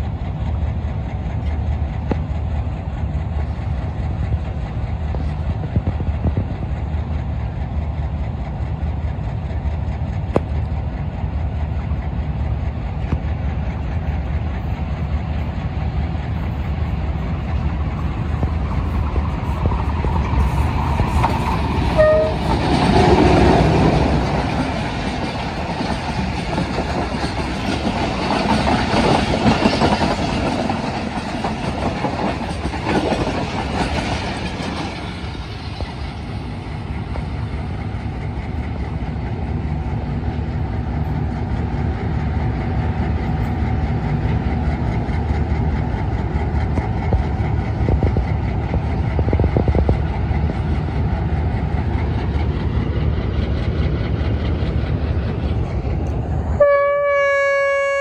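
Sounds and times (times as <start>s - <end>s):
train horn: 21.9s - 22.6s, 56.6s - 58.0s.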